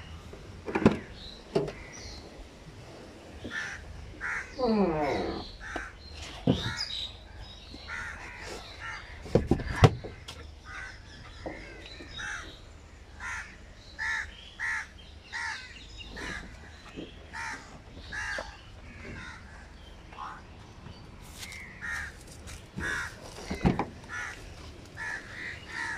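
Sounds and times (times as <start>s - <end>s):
crows cawing: 3.5s - 4.7s, 5.4s - 6.0s, 7.9s - 9.3s, 10.0s - 12.5s, 13.2s - 16.7s, 17.3s - 20.4s, 21.7s - 22.2s, 22.8s - 25.9s.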